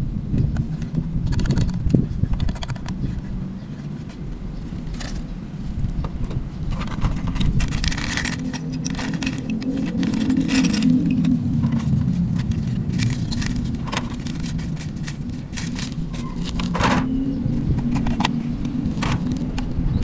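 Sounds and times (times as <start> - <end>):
steady low hum: 0.0 - 20.0
paper rustling: 6.7 - 17.1
plastic bag crinkling: 7.4 - 16.8.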